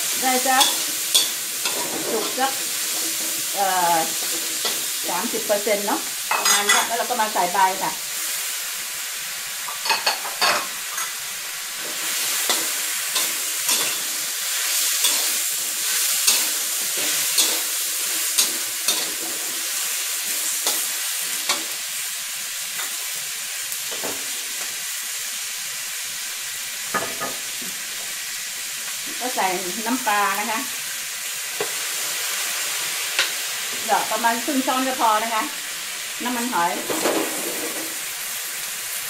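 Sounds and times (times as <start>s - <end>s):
food sizzling in a wok: 0.0s - 39.0s
metal spatula scraping wok: 0.2s - 5.6s, 9.7s - 21.9s.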